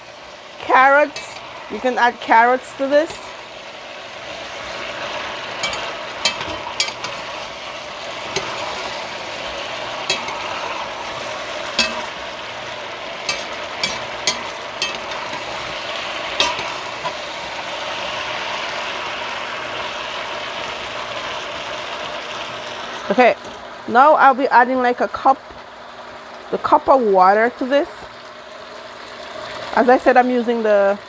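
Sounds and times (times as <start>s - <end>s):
food sizzling in a pot: 0.0s - 31.0s
metal spoon clinking on pot: 5.6s - 7.2s, 10.1s - 10.4s, 11.7s - 12.1s, 13.3s - 15.4s, 16.4s - 17.2s.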